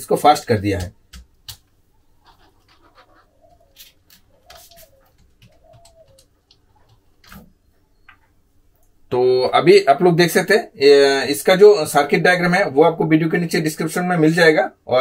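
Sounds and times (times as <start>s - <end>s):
pigeon cooing: 2.0s - 7.4s.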